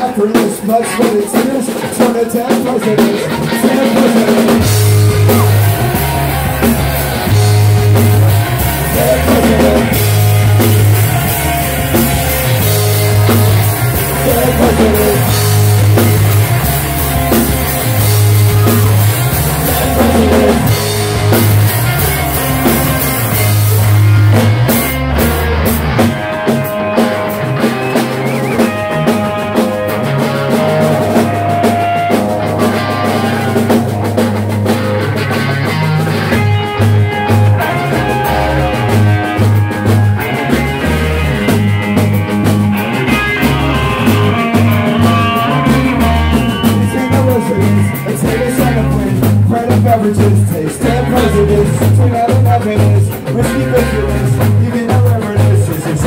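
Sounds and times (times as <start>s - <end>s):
person singing: 0.0s - 24.0s, 42.8s - 56.0s
bass guitar: 0.0s - 56.0s
drum kit: 0.0s - 56.0s
electric guitars: 0.0s - 56.0s.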